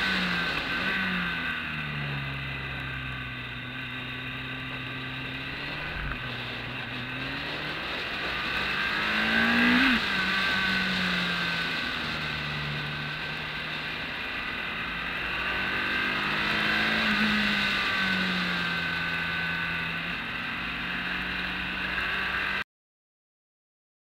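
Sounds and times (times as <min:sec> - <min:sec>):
motorcycle engine: 0:00.0 - 0:22.6
wind rushing over microphone: 0:05.0 - 0:13.2.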